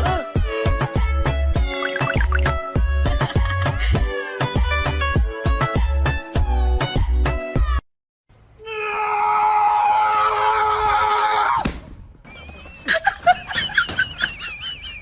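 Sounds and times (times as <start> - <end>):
person screaming: 8.6 - 11.6.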